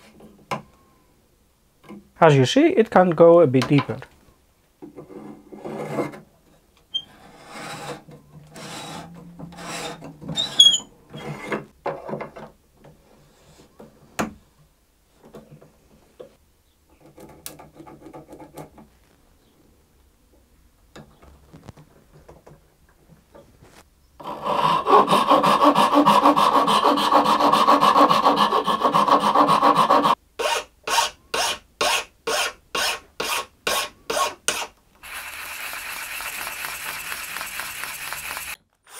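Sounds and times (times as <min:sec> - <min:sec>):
file strokes on wood: 0:07.0 - 0:08.0, 0:24.2 - 0:36.8
reamer scraping wood: 0:34.5 - 0:38.6.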